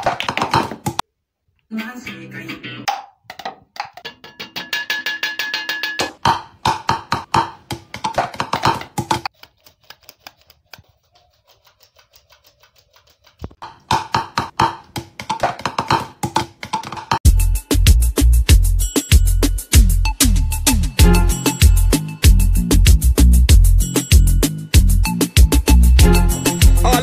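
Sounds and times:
percussive background music: 0:05.9 - 0:09.3, 0:13.4 - 0:27.0.

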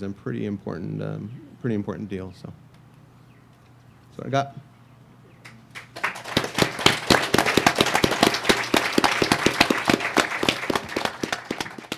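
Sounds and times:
audience applauding: 0:05.7 - 0:11.9.

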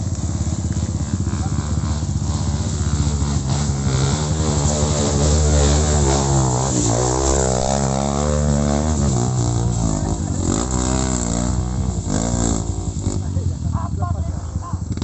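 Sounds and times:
motorcycle engine revving: 0:00.0 - 0:15.0.

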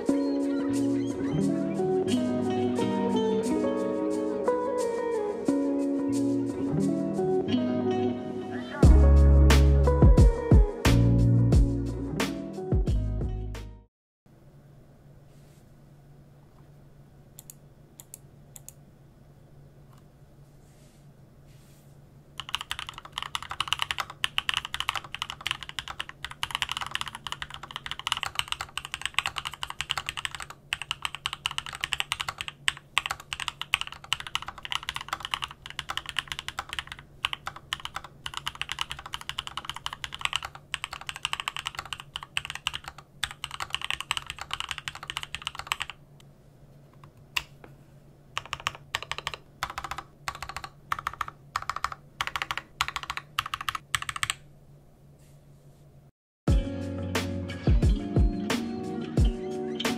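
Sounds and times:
typing on mechanical keyboard: 0:22.4 - 0:46.0, 0:48.4 - 0:54.4.

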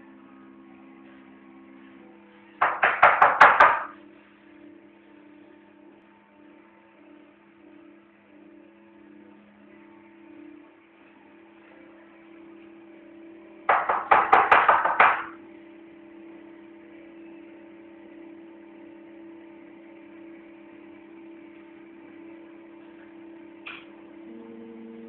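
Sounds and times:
rapid loud knocks: 0:02.6 - 0:03.9, 0:13.7 - 0:15.4.

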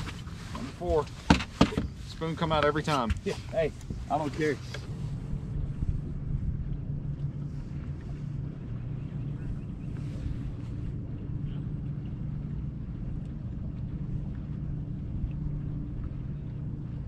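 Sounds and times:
wind rumble on microphone: 0:00.0 - 0:17.0
low electric hum: 0:03.7 - 0:17.0.

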